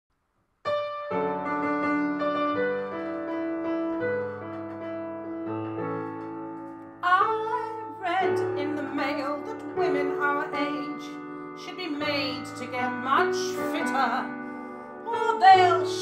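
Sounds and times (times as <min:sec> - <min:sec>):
piano chords: 0:00.6 - 0:16.0
woman singing: 0:07.0 - 0:14.4, 0:15.0 - 0:16.0.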